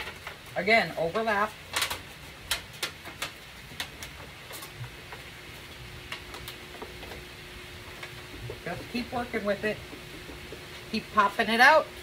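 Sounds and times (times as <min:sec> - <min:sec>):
aluminum sheet clicking and crinkling: 0:00.0 - 0:07.3.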